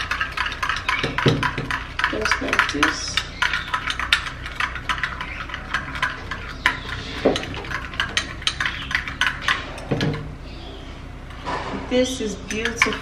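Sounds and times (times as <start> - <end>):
spoon scraping glass bowl: 0.0 - 10.1.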